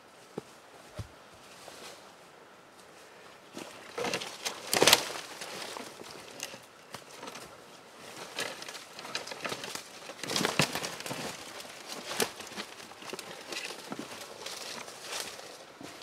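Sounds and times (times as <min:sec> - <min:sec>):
dry leaves and sticks crackling: 0:03.4 - 0:16.0.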